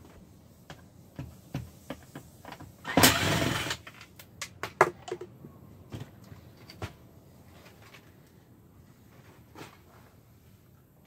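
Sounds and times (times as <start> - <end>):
cordless drill running: 2.9 - 3.8.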